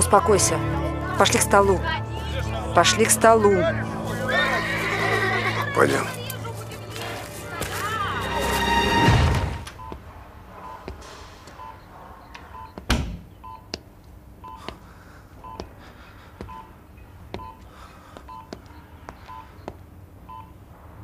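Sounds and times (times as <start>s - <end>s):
heart monitor beeping: 9.6s - 13.8s, 14.4s - 15.8s, 16.4s - 20.6s.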